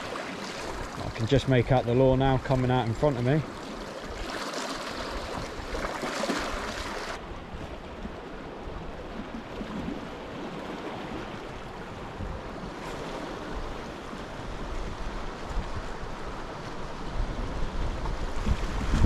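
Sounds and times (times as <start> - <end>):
wind rumbling on microphone: 6.6 - 19.0.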